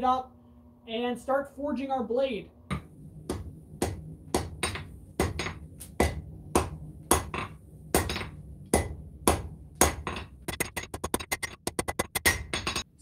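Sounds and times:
steady low hum: 0.0 - 13.0
hammer striking steel on anvil: 3.3 - 10.3.

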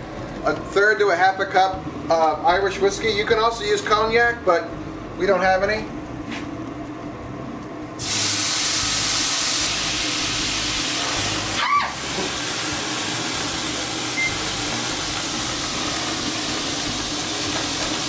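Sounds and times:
whiskey hissing in a hot skillet: 8.0 - 18.0.

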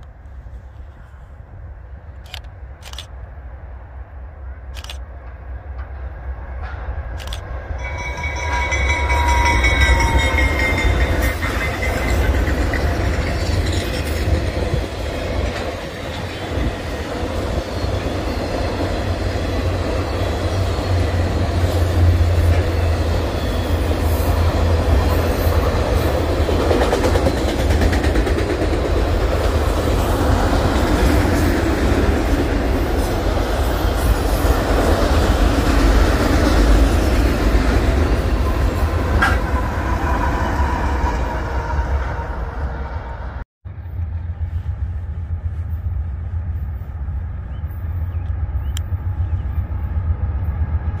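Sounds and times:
freight train rumbling past: 0.0 - 51.0
high ringing tones: 7.7 - 12.6.

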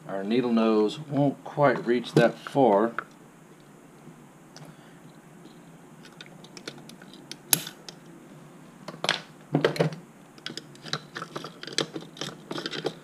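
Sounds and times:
hand tools clattering on plastic: 9.6 - 13.0.

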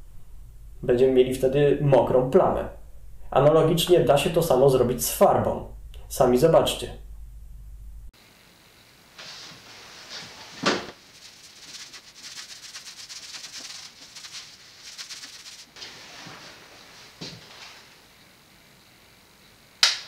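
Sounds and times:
brush scrubbing back and forth: 9.2 - 16.6.

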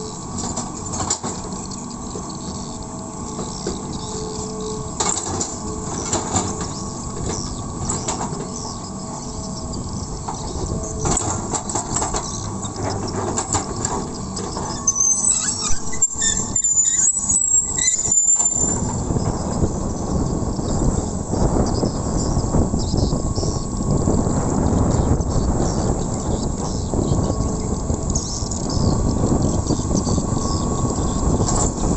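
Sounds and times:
excavator diesel engine: 0.0 - 31.9
high squeaks: 1.6 - 19.7.

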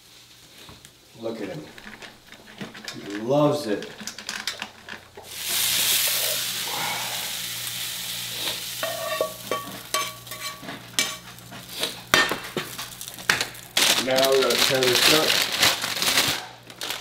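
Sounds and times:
beef sizzling in a pan: 5.2 - 15.6
spatula scraping a pan: 8.4 - 13.4.

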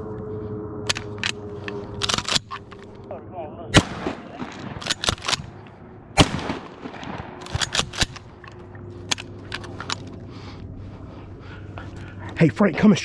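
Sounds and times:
shotgun shot: 3.8 - 5.2, 6.2 - 7.9
quieter sharp cracks: 3.8 - 10.1.

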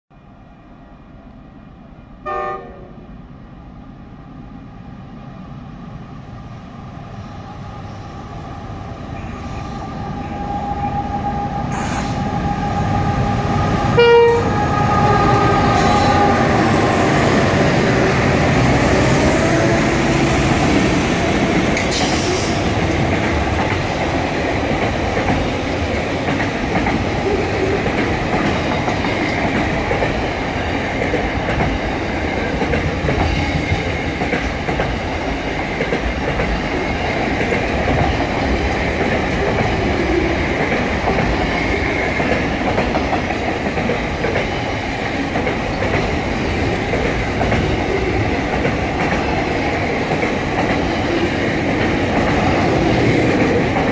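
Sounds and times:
diesel locomotive engine noise: 0.3 - 53.9
train horn blast: 2.2 - 3.1, 14.0 - 14.6
train wagons rumbling and clattering: 9.1 - 53.9.

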